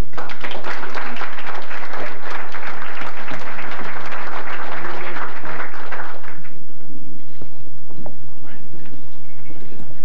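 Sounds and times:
audience applauding: 0:00.0 - 0:06.6.

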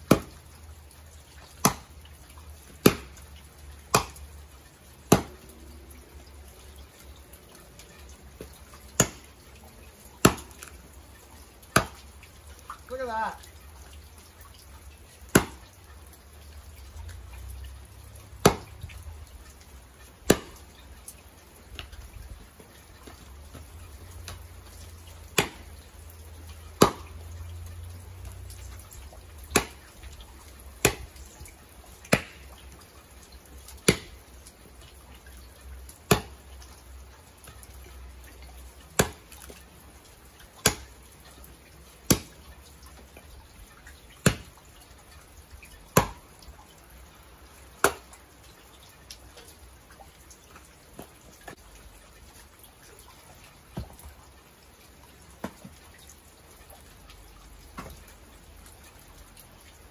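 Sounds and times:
axe chopping wood: 0:00.1 - 0:00.4, 0:01.6 - 0:01.9, 0:02.8 - 0:03.2, 0:03.9 - 0:04.2, 0:05.1 - 0:05.4, 0:08.9 - 0:09.3, 0:10.2 - 0:10.7, 0:11.7 - 0:12.0, 0:15.3 - 0:15.6, 0:18.4 - 0:18.7, 0:20.2 - 0:20.6, 0:25.3 - 0:25.8, 0:26.8 - 0:27.2, 0:29.5 - 0:29.9, 0:30.8 - 0:31.2, 0:32.1 - 0:32.4, 0:33.8 - 0:34.2, 0:36.1 - 0:36.4, 0:39.0 - 0:39.5, 0:40.6 - 0:40.9, 0:42.1 - 0:42.4, 0:44.2 - 0:44.5, 0:46.0 - 0:46.2, 0:47.8 - 0:48.1.

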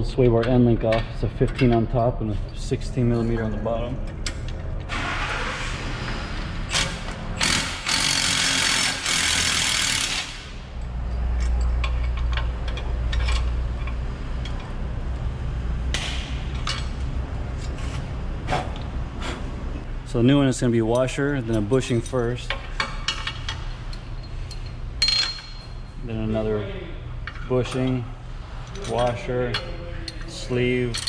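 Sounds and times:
metal clicks and knocks: 0:11.2 - 0:14.7.

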